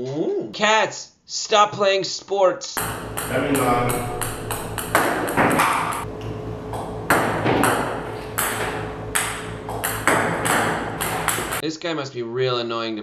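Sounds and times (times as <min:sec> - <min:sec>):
steady low hum: 0:02.8 - 0:11.6
table tennis balls clicking: 0:02.8 - 0:11.6.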